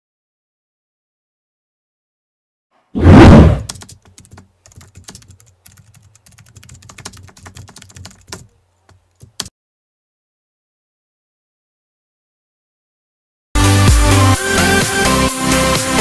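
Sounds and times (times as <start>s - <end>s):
keyboard typing clicks: 3.6s - 9.5s.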